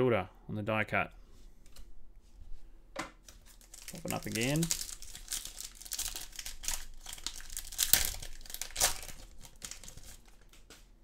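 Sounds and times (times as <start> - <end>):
foil wrapper tearing and crinkling: 3.4 - 10.6.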